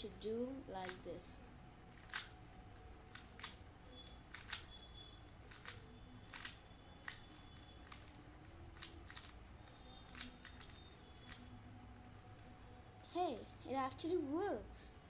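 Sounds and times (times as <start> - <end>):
puzzle cube clicking: 0.7 - 1.2, 1.9 - 11.6.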